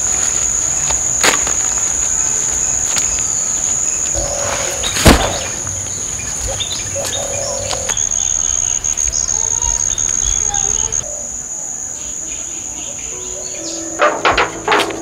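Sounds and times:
insects shrilling: 0.0 - 15.0
loud thump: 5.0 - 5.8.

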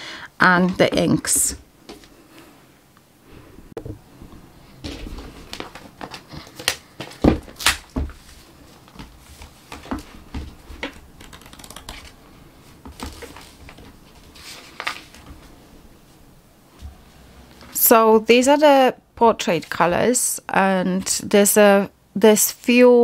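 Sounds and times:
paper pages rustling: 12.8 - 15.6.

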